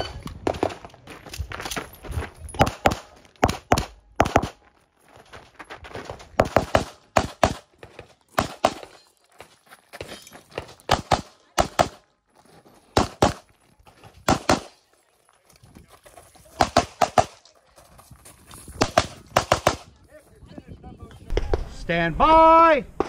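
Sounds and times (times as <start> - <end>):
pistol shots: 2.6 - 4.6, 6.4 - 7.6, 10.9 - 12.0, 14.3 - 14.8, 18.8 - 19.8.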